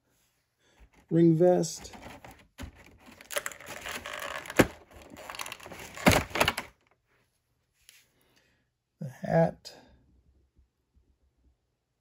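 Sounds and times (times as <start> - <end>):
plastic packaging crinkling: 1.9 - 6.8.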